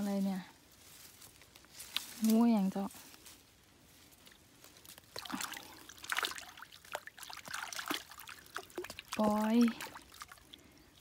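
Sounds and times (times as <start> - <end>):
stream water splashing: 4.2 - 11.0.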